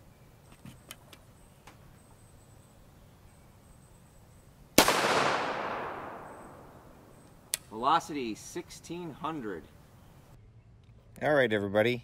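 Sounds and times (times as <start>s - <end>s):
gunshot with long echo: 4.8s - 7.1s.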